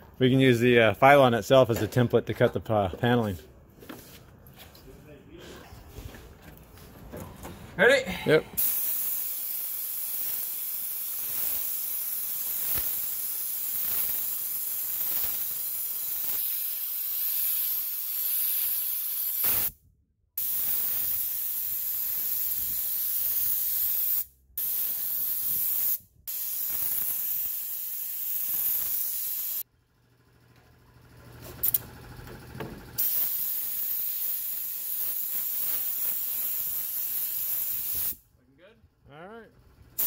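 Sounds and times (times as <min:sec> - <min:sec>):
spray gun hissing: 0:08.6 - 0:19.7, 0:20.4 - 0:29.6, 0:33.0 - 0:38.2.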